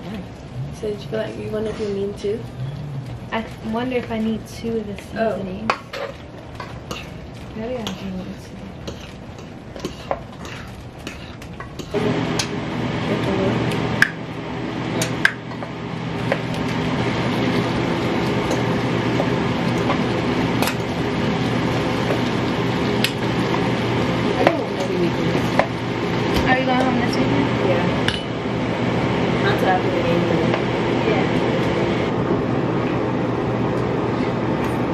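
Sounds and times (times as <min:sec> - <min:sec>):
loud humming drone: 0:00.0 - 0:04.6, 0:11.8 - 0:34.9
metal utensil scraping frying pan: 0:05.7 - 0:12.0.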